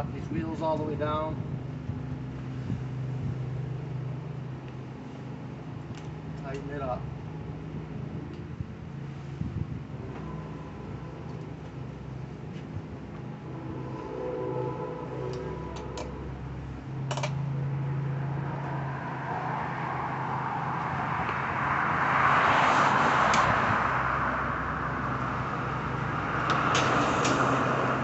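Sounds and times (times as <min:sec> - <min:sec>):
steady low hum: 0:00.0 - 0:22.2
road traffic passing: 0:00.0 - 0:28.0
handlebar and cable clicks: 0:17.1 - 0:17.4.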